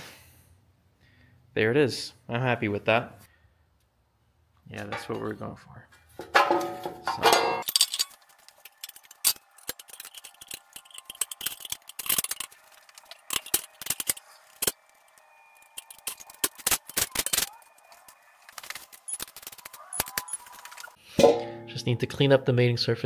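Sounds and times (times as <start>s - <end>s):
metal hand tools clinking: 6.4s - 14.8s.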